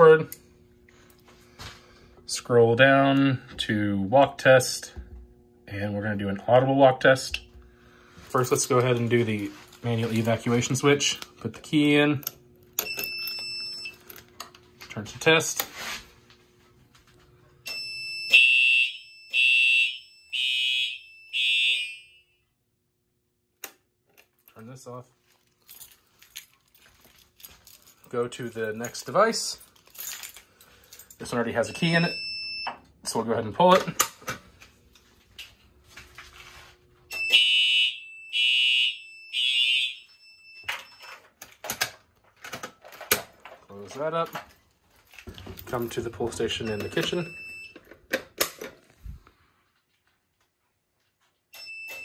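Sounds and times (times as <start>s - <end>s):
fire alarm horn blasts: 17.7s - 22.6s, 31.5s - 32.8s, 37.1s - 41.1s.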